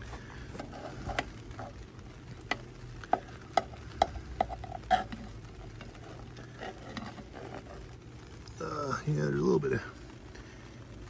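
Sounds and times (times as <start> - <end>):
metal spoon scraping pot: 0.0 - 1.8, 2.5 - 8.0.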